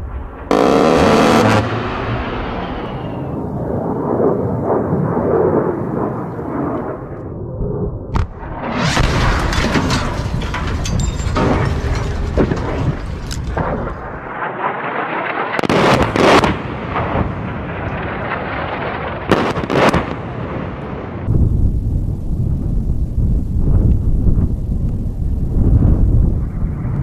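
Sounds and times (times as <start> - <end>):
cannon rounds exploding: 0.0 - 3.7, 8.1 - 21.7.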